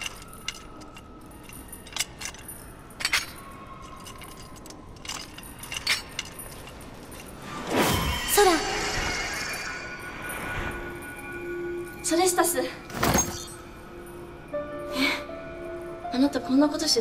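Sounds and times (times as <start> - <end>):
metal shackles clinking: 0.0 - 7.7.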